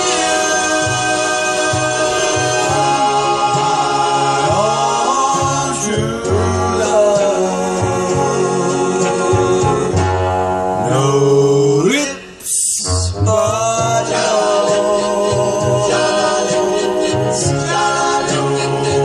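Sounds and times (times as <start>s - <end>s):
man singing a cappella: 0.0s - 10.0s, 10.8s - 19.0s.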